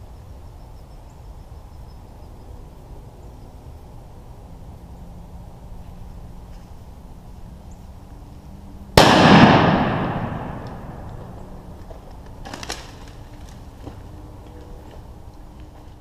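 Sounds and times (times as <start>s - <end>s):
shotgun blast echoing: 9.0s - 11.4s.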